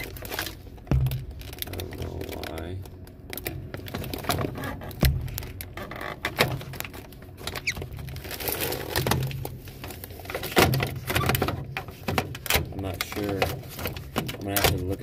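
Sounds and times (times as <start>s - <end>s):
plastic parts clicking and rattling: 0.0s - 15.0s
heavy thump: 0.8s - 1.8s.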